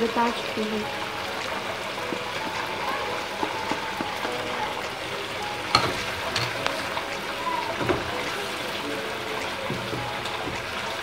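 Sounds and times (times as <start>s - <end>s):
masala sizzling in a frying pan: 0.0s - 11.0s
wooden spatula scraping: 5.7s - 11.0s.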